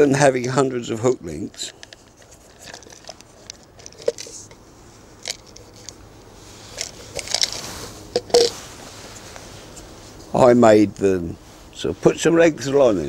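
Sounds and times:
hands handling fishing tackle: 1.4 - 4.6, 5.2 - 10.2.

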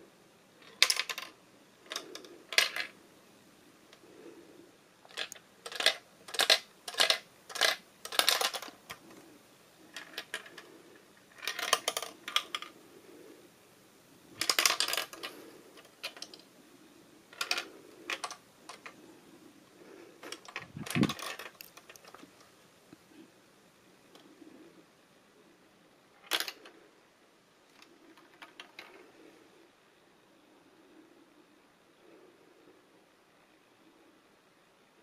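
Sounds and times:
plastic ball clattering on bricks: 0.6 - 3.0, 5.0 - 9.3, 9.9 - 12.8, 14.3 - 16.5, 17.3 - 19.2, 19.8 - 22.5, 26.2 - 26.8, 27.7 - 29.2.

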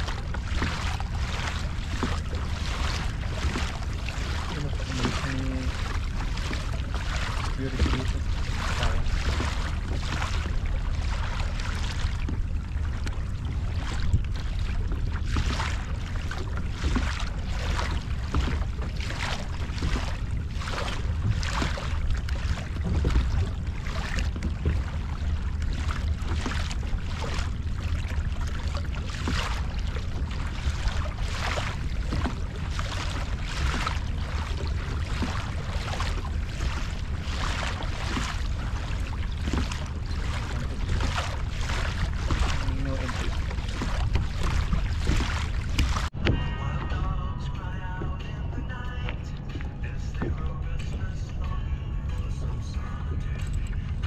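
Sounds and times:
water splashing against kayak hull: 0.0 - 54.0
wind rumble on microphone: 0.0 - 54.0.

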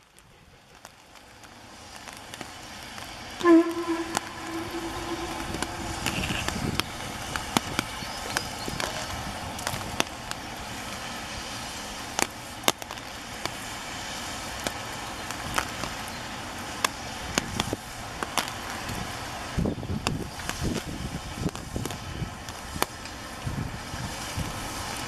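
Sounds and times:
distant steam whistle: 3.4 - 8.4.

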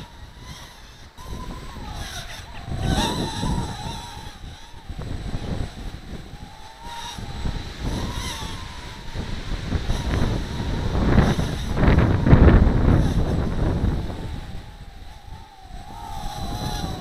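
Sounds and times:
drone propellers whining: 0.0 - 17.0
wind buffeting microphone: 0.0 - 17.0.

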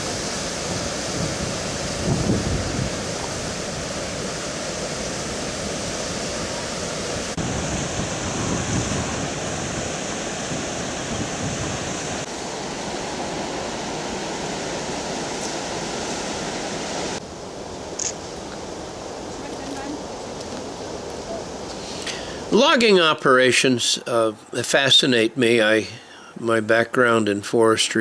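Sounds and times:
water rushing over rocks: 0.0 - 17.2.

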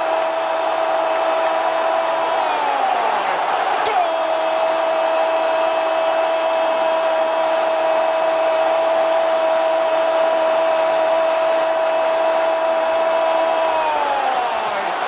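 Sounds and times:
stadium crowd cheering: 0.0 - 15.0.

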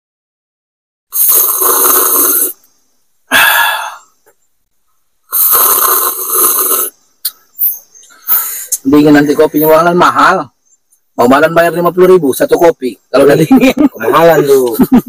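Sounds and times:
man slurping coffee: 1.1 - 2.6, 5.3 - 8.8.

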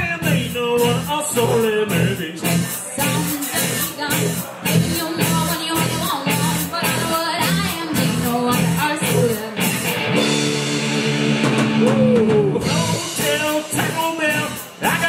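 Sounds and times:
drum kit: 0.0 - 15.0
electric guitars: 0.0 - 15.0
woman singing: 2.4 - 9.8.

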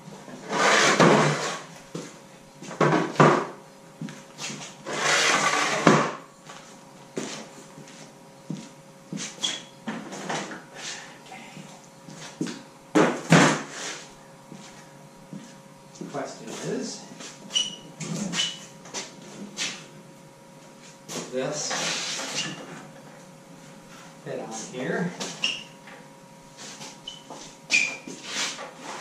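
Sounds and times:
faint steady hum: 0.0 - 29.0
wooden stands scraping on concrete: 0.3 - 1.8, 4.4 - 6.6, 12.1 - 14.8, 20.8 - 22.9, 26.6 - 29.0.

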